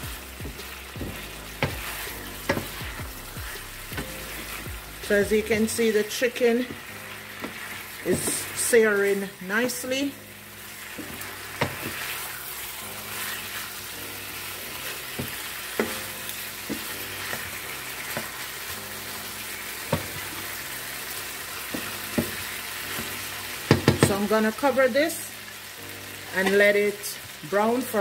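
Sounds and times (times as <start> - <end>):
wooden spatula stirring: 0.0 - 9.9, 10.6 - 20.6
chicken sizzling in hot oil: 0.0 - 28.0.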